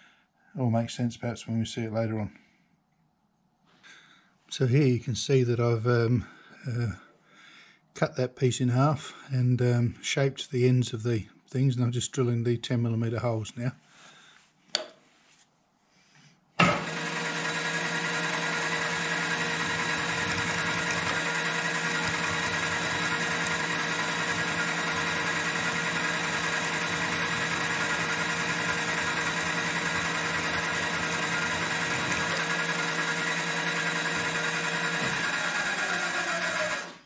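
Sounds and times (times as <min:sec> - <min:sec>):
drill cutting into metal: 0:16.6 - 0:37.0
milling machine spindle motor running: 0:16.6 - 0:37.0.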